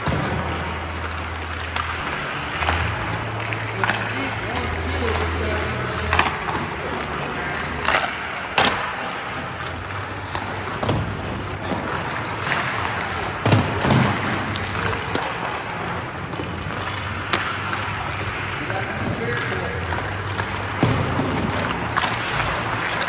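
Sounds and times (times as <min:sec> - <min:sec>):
rink background noise: 0:00.0 - 0:23.0
skate blades scraping ice: 0:00.0 - 0:23.0.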